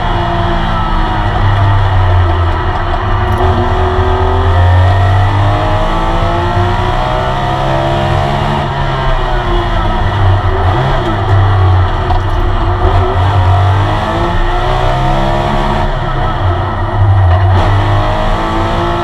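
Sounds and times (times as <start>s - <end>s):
racing engine accelerating: 0.0s - 19.0s
low cabin drone: 0.6s - 7.2s, 8.5s - 17.6s.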